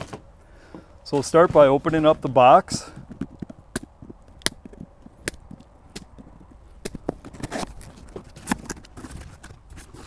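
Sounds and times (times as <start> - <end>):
cardboard rustling: 4.7 - 10.0.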